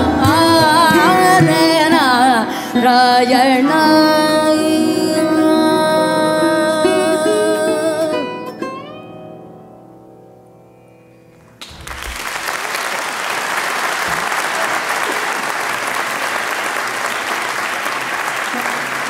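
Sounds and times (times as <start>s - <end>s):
audience applause: 11.6s - 19.0s.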